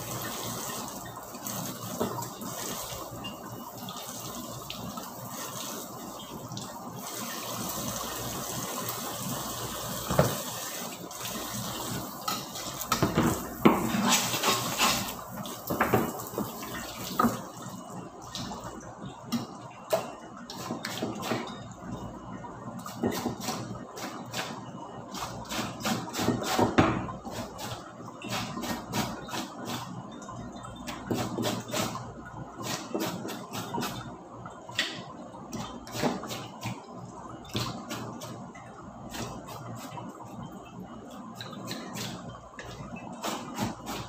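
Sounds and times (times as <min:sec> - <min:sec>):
tap running into a sink: 0:10.0 - 0:17.5, 0:26.3 - 0:27.2
clatter of pans and utensils: 0:12.3 - 0:16.5.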